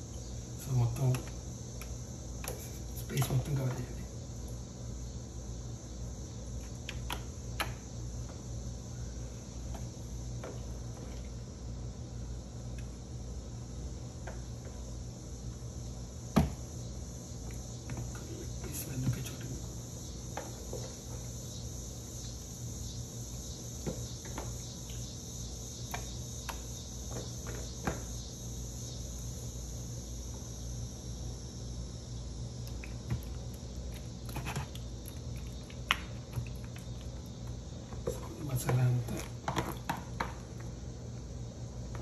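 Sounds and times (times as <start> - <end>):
faint high whine: 0.0 - 42.0
steady low hum: 0.0 - 42.0.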